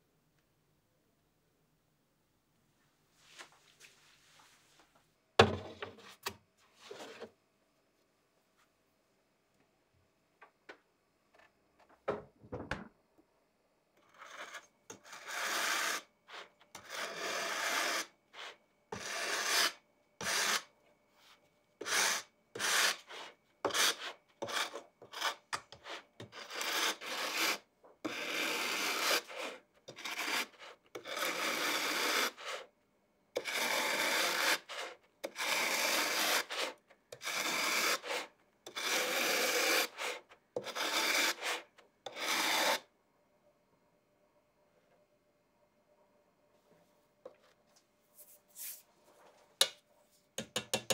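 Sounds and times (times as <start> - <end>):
grater rasping on pastry: 14.0 - 20.7, 21.8 - 32.7, 33.4 - 42.8.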